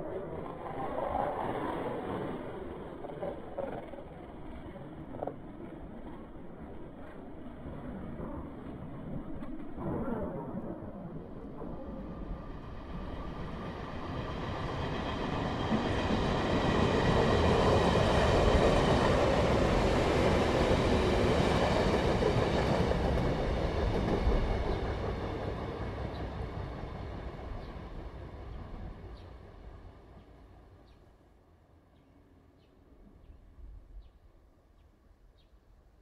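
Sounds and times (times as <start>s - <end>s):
train passing: 11.8s - 32.6s.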